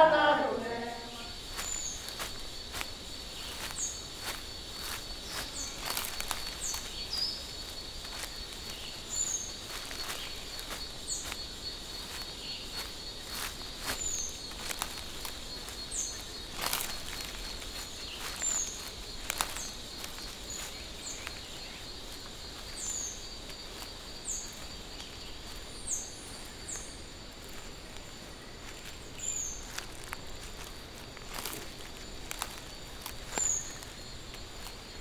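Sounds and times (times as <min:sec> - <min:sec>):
high insect drone: 0:00.0 - 0:35.0.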